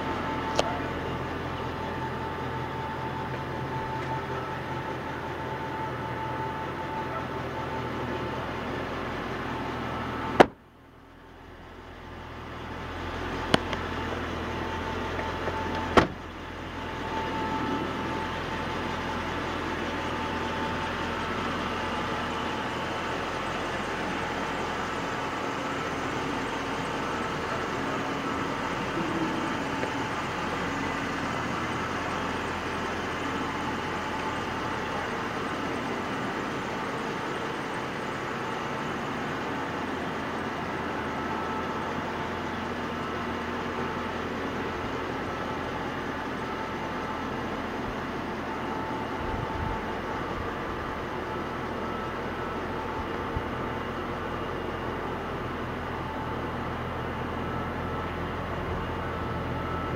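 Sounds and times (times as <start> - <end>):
car door slamming: 10.3 - 10.6, 15.4 - 16.3.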